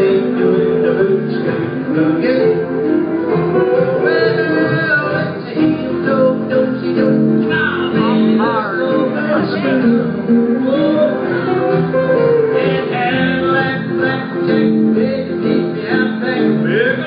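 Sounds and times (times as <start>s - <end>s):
person singing: 0.0s - 17.0s.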